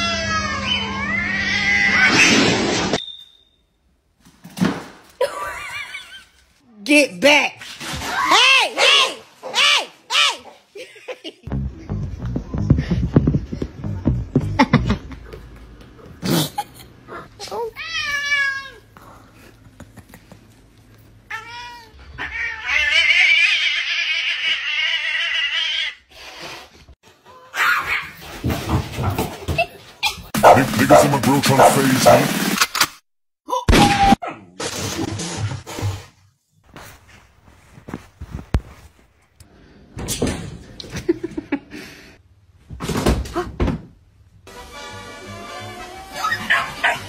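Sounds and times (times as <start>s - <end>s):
cat meowing and yowling: 0.0s - 2.2s
thumping and rustling: 28.2s - 29.8s
scuffling noise: 36.7s - 39.2s.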